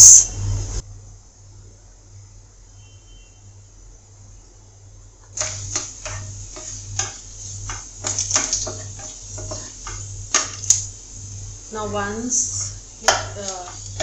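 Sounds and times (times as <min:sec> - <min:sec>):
spatula knocking on pan: 0:05.4 - 0:10.9, 0:12.5 - 0:14.0
wooden spatula scraping wok: 0:05.4 - 0:14.0.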